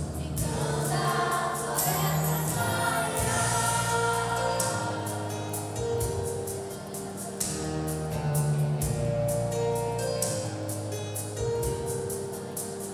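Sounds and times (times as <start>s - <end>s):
children's choir singing: 0.0s - 6.4s
music accompaniment: 0.0s - 12.9s.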